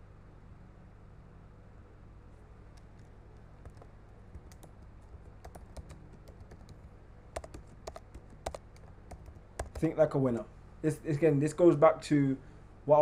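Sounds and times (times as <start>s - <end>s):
keyboard keystrokes clicking: 2.8s - 9.9s.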